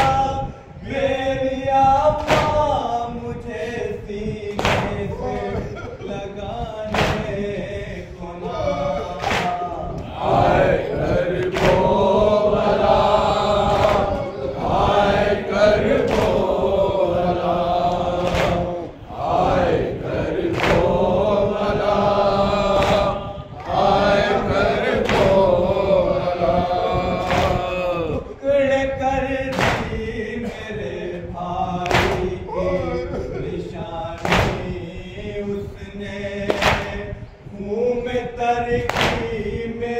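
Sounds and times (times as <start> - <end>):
men chanting in unison: 0.0 - 39.9
hands slapping chests: 2.2 - 2.6, 4.6 - 5.1, 6.9 - 7.3, 9.2 - 9.6, 11.4 - 11.9, 13.7 - 14.2, 18.2 - 18.7, 20.5 - 20.9, 22.8 - 23.7, 25.0 - 25.4, 27.2 - 27.7, 29.5 - 30.0, 31.8 - 32.3, 34.2 - 34.8, 36.5 - 37.0, 38.9 - 39.3.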